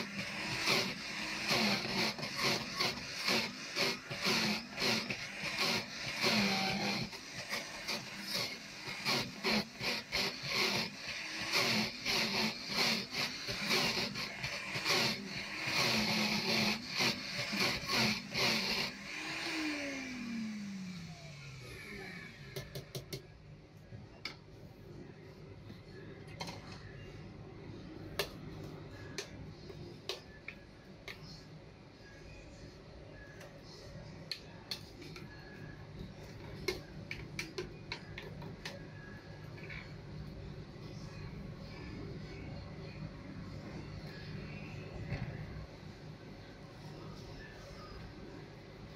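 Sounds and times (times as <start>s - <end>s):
blender crushing ice: 0.0s - 22.6s
motor winding down whine: 0.0s - 22.9s.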